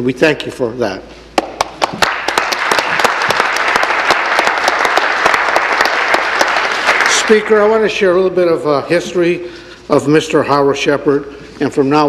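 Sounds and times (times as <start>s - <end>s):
audience applause: 1.8s - 7.8s.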